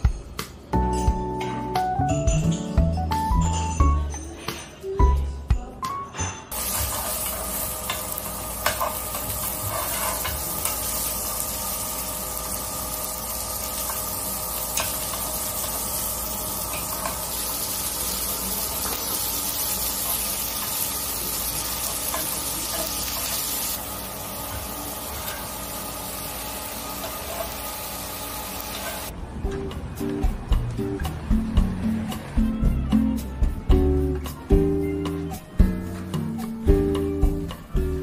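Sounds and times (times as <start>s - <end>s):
meat sizzling on griddle: 6.5s - 29.1s.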